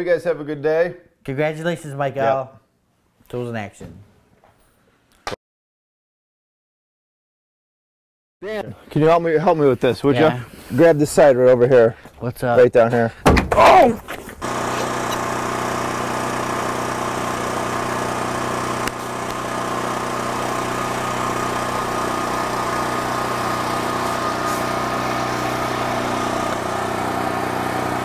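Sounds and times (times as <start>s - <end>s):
pressure washer running: 14.4s - 28.0s
water spraying: 14.4s - 28.0s.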